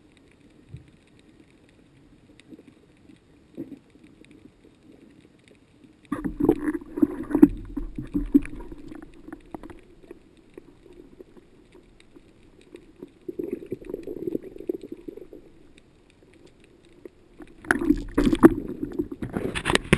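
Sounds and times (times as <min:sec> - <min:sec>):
muffled underwater water movement: 0:00.0 - 0:19.9.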